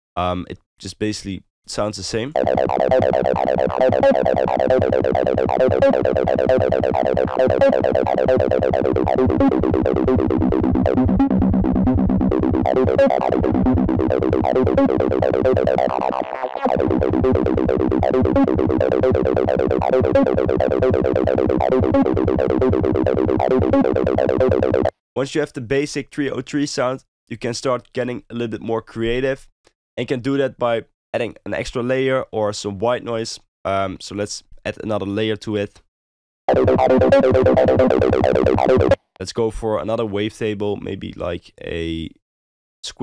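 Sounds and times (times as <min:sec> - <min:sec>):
acid synth bassline: 0:02.4 - 0:24.9, 0:36.5 - 0:39.0.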